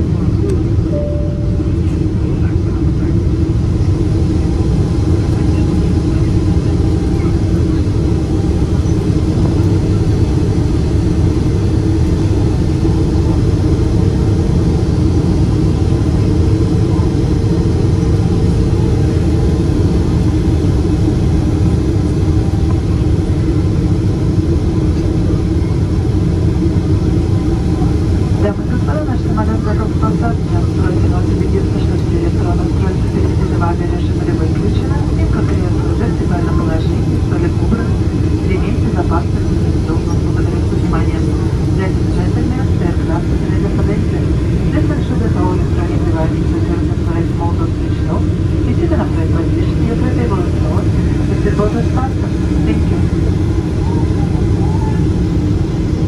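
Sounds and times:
airplane cabin engine drone: 0.0 - 56.0.

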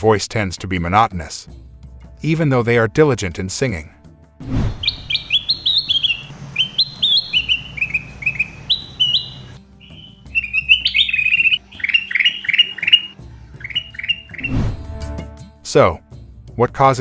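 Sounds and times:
bulbul singing: 4.8 - 14.7.

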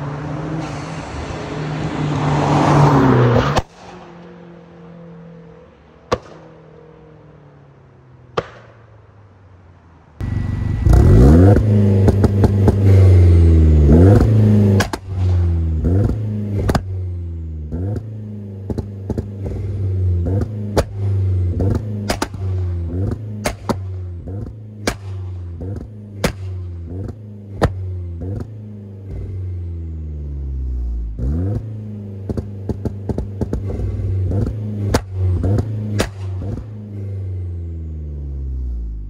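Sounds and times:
exhaust cracks: 10.2 - 29.6, 31.1 - 37.2
car exhaust revving: 10.2 - 39.0.

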